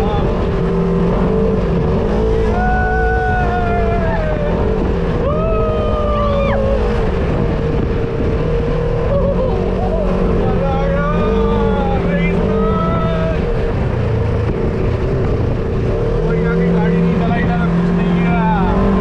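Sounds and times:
off-road vehicle engine: 0:00.0 - 0:19.0
slowly falling high tones: 0:09.1 - 0:11.9.

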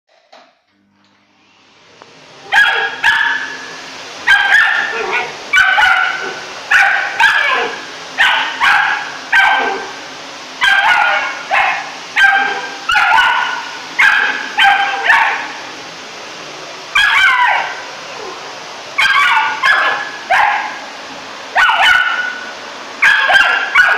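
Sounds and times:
vacuum cleaner running: 0:00.7 - 0:23.9
puppy yapping barks: 0:02.4 - 0:03.6, 0:04.3 - 0:09.9, 0:10.6 - 0:15.5, 0:17.0 - 0:17.8, 0:19.0 - 0:20.8, 0:21.6 - 0:22.4, 0:23.0 - 0:23.9.

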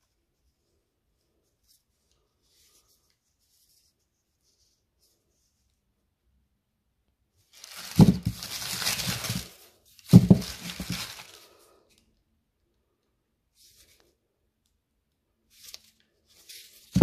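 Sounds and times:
paper wrapping torn and crumpled: 0:07.6 - 0:11.5.

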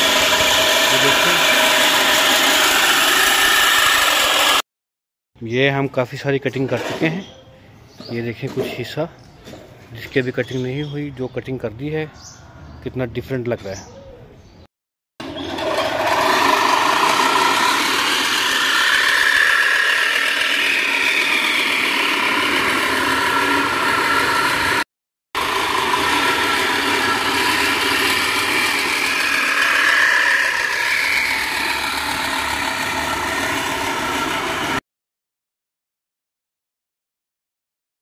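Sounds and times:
push reel mower whirring: 0:00.0 - 0:04.6, 0:15.2 - 0:24.8, 0:25.4 - 0:34.8.

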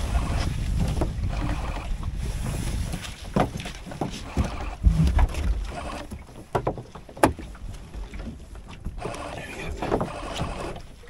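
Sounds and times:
rope and sailcloth rustling: 0:00.0 - 0:06.5.

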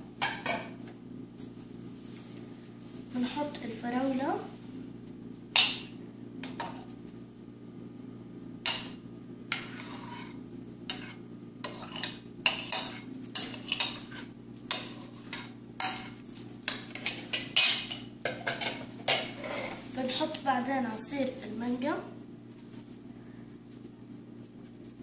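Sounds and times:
metal spoon scraping plastic bowl: 0:09.6 - 0:14.3.

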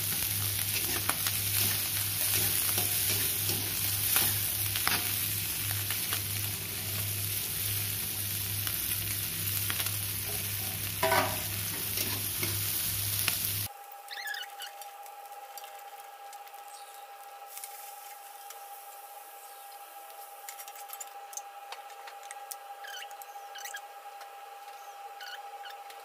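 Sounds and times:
oil sizzling in a wok: 0:00.0 - 0:13.7, 0:14.6 - 0:20.8
metal spatula scraping a pan: 0:11.0 - 0:11.4.

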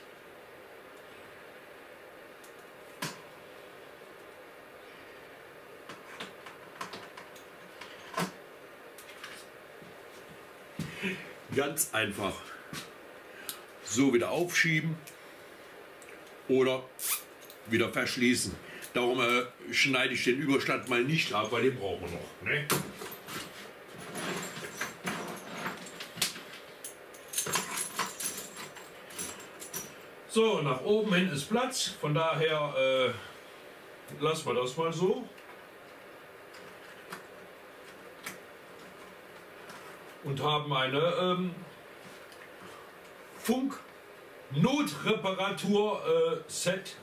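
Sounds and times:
cables rustling and clicking: 0:05.8 - 0:10.9, 0:20.7 - 0:30.0, 0:35.3 - 0:40.3, 0:42.0 - 0:44.0.

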